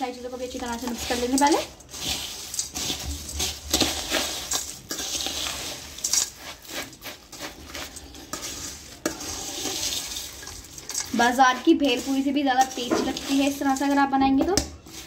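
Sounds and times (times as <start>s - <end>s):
crisp puffed rice rustling: 0.0s - 15.0s
spoon scraping and clinking on bowl: 0.8s - 14.1s.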